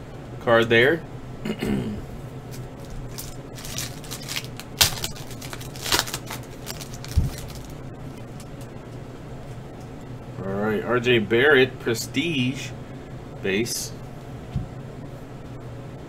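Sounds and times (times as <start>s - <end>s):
foil wrapper crinkling and tearing: 2.5s - 8.7s.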